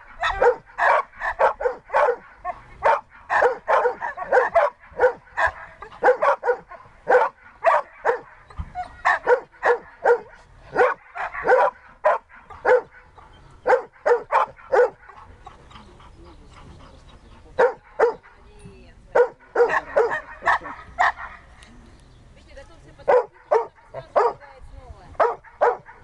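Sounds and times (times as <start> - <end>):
dog barking: 0.1 - 15.3, 17.6 - 18.4, 19.2 - 21.5, 23.1 - 24.4, 25.2 - 26.0.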